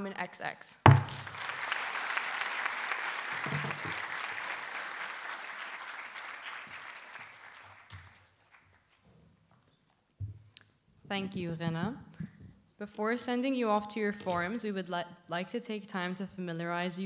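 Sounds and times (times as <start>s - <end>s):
audience applauding: 0.9s - 8.8s.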